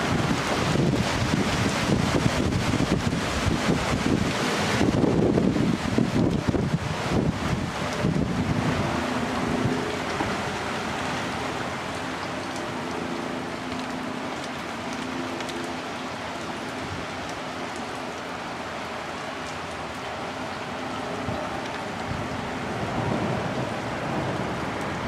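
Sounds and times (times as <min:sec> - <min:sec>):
wind buffeting microphone: 0:00.0 - 0:12.7
steady rain: 0:00.0 - 0:25.0.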